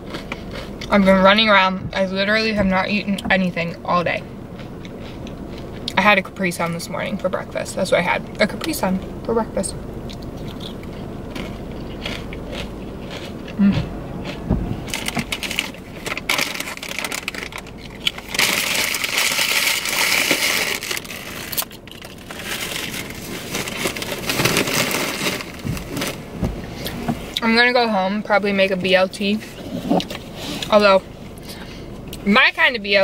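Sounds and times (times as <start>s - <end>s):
chewing crunchy chips: 0.0s - 1.1s, 4.6s - 6.0s, 10.1s - 26.2s
plastic bag crinkling: 14.9s - 26.2s.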